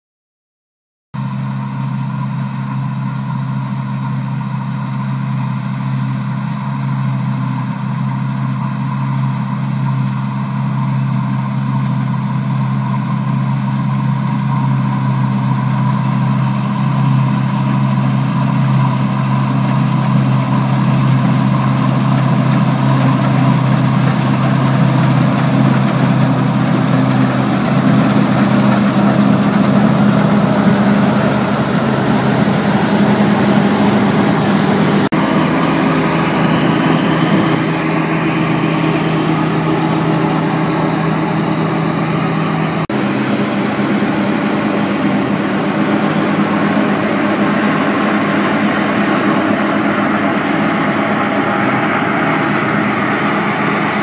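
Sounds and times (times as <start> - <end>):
combine harvester engine drone: 1.2 - 54.0
rush of passing machine noise: 15.2 - 54.0.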